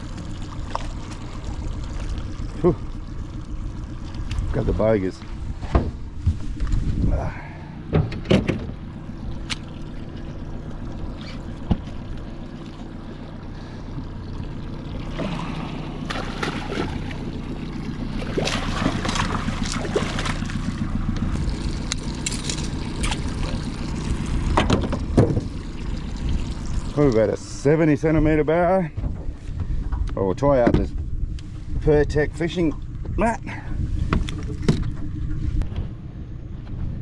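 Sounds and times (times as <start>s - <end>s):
boat motor humming: 0.0s - 37.0s
knocks and splashy rustles: 14.0s - 27.3s.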